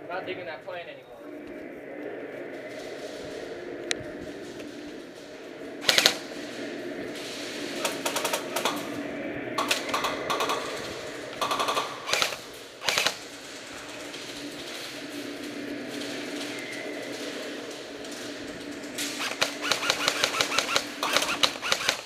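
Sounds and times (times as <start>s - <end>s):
airsoft guns firing bursts: 5.8s - 6.3s, 9.6s - 13.4s, 19.0s - 22.0s.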